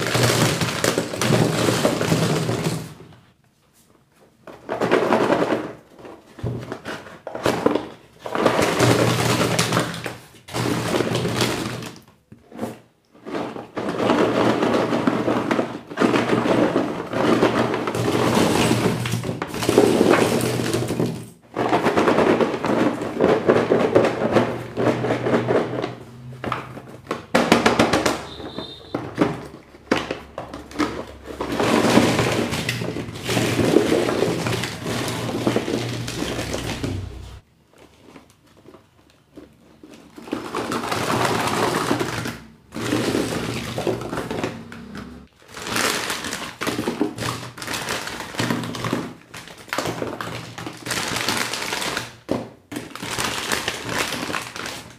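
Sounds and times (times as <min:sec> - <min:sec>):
wrappers crinkling and tearing: 0:29.4 - 0:54.9.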